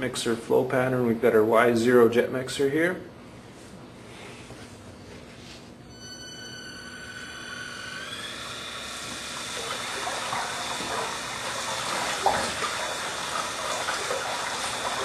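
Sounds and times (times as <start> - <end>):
motor whine: 5.9 - 13.2
churning rushing water: 9.6 - 15.0.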